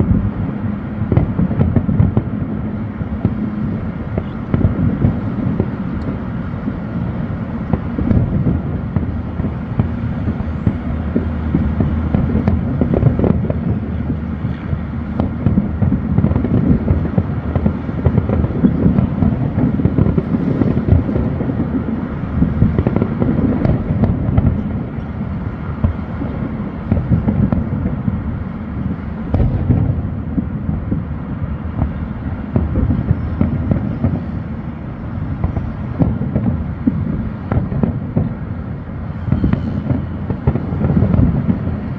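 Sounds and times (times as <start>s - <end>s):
distant fireworks booms and crackles: 0.0s - 41.9s.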